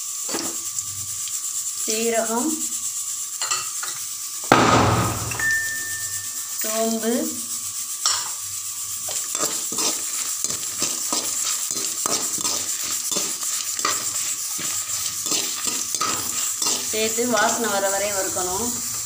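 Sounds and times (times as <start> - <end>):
sizzling hiss: 0.0 - 19.0
spoon scraping a steel pot: 9.1 - 17.8.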